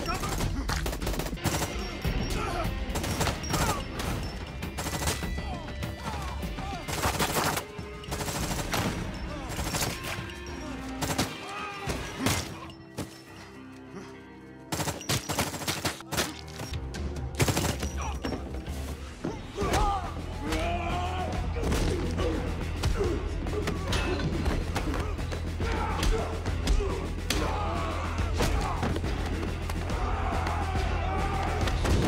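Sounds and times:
gunshots: 0:00.0 - 0:02.0, 0:02.8 - 0:05.5, 0:06.7 - 0:10.2, 0:11.0 - 0:12.6, 0:14.7 - 0:16.7, 0:17.4 - 0:18.1
bursts of rapid gunfire: 0:00.0 - 0:02.1, 0:02.8 - 0:05.5, 0:06.6 - 0:10.1, 0:14.7 - 0:16.4, 0:17.4 - 0:18.0
tense music score: 0:00.0 - 0:32.0.

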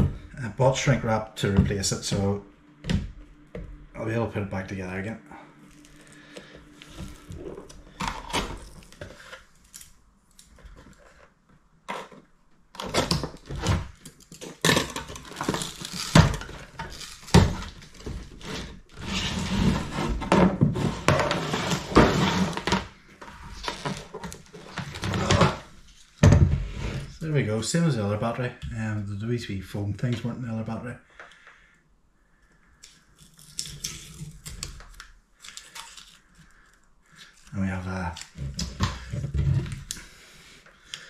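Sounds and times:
tape rustling: 0:05.6 - 0:20.2, 0:32.4 - 0:40.1.

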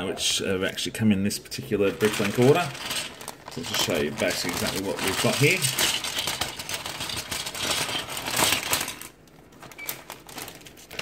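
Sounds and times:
plastic bag crinkling: 0:01.6 - 0:11.0
plastic bricks clattering on wood: 0:02.0 - 0:09.1.

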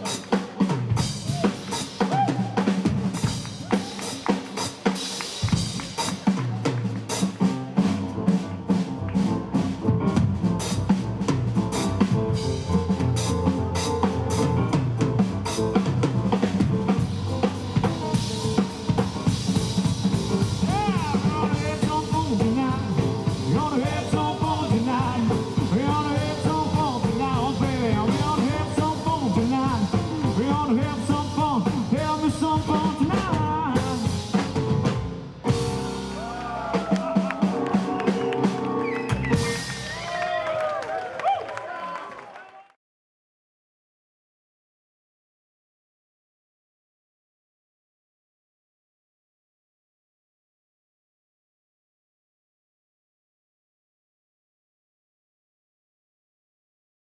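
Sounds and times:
drum kit rimshots: 0:00.0 - 0:40.4
live rock and roll band: 0:00.0 - 0:41.3
piano: 0:00.0 - 0:41.3
upright double bass: 0:05.5 - 0:36.8.

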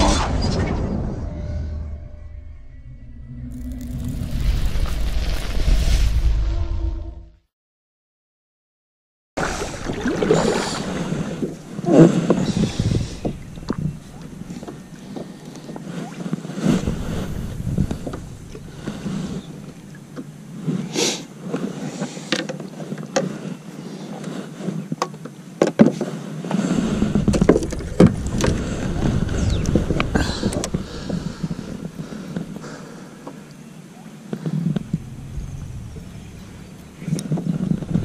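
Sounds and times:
small waves slapping kayak hull: 0:09.4 - 0:23.4
wind buffeting microphone: 0:11.0 - 0:15.2, 0:16.6 - 0:20.6, 0:26.8 - 0:32.6, 0:34.6 - 0:38.0.

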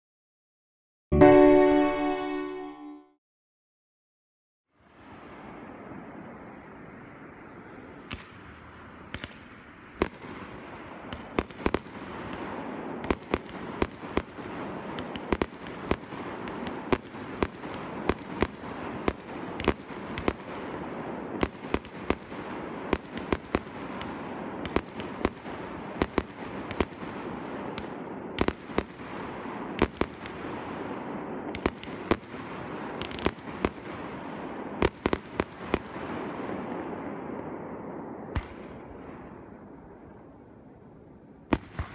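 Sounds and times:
fireworks bursting with sharp bangs: 0:05.0 - 0:40.4, 0:41.4 - 0:41.9.

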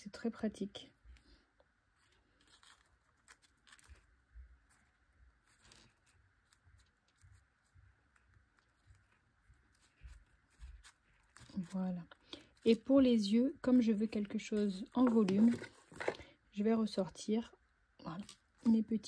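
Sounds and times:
fingers rustling and tapping cardstock: 0:02.3 - 0:16.1.

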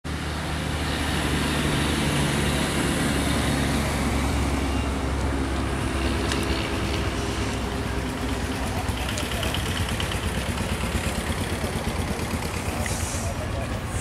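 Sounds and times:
diesel locomotive engine droning: 0:00.1 - 0:14.0.

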